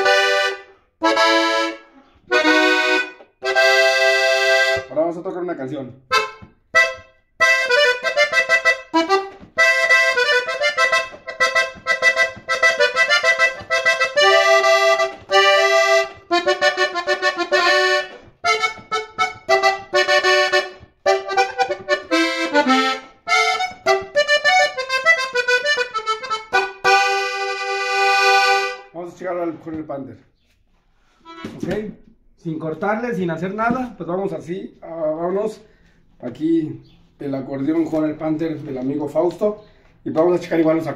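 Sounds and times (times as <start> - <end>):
button accordion playing: 0.0 - 5.0, 6.1 - 29.0, 31.0 - 31.8.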